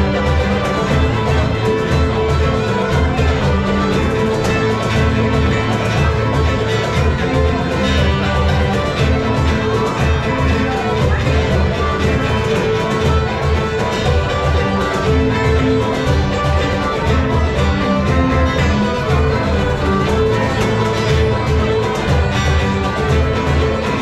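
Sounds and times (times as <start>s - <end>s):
folk dance band playing polka: 0.0s - 24.0s.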